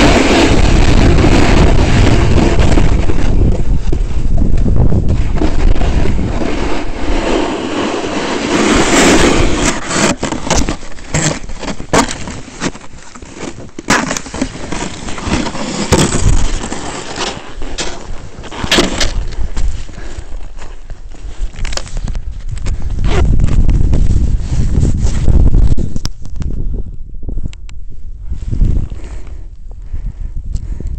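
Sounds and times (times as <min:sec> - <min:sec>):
skis scraping on hard snow: 0:00.0 - 0:26.1
wind rumbling on microphone: 0:00.0 - 0:30.9.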